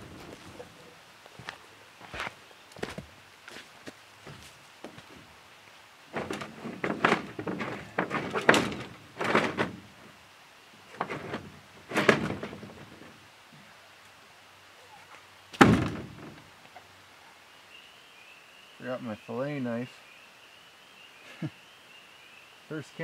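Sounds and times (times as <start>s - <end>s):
handling noises: 6.1s - 10.2s, 10.8s - 13.2s
loud thunk: 6.2s - 9.8s, 15.6s - 16.4s.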